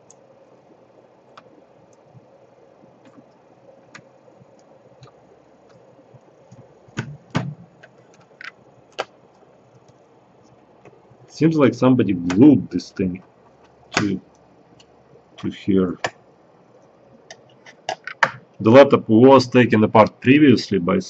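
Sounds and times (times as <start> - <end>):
sharp knocks on laptop case: 6.9 - 7.8.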